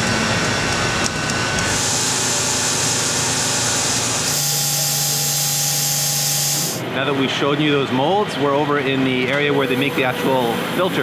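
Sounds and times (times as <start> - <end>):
steady hum and whine: 0.0 - 11.0
machine tool cutting metal: 0.3 - 6.8.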